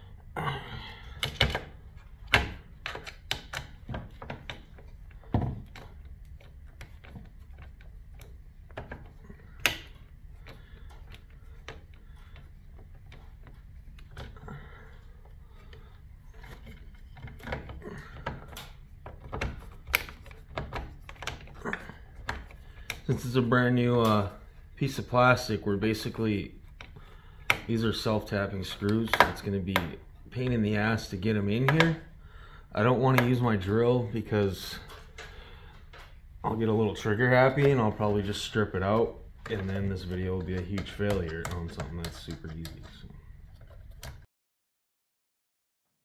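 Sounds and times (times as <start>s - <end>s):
steady low hum: 0.0s - 44.0s
plastic housing being handled: 37.5s - 44.2s.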